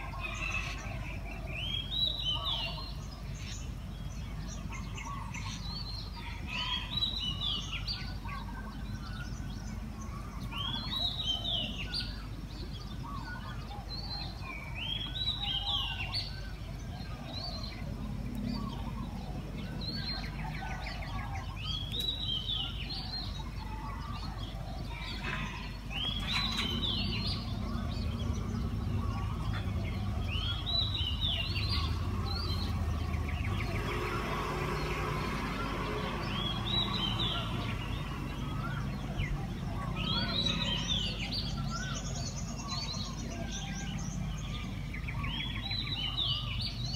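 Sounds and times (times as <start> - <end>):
songbird singing: 0.0 - 46.9
low background rumble: 15.8 - 34.1.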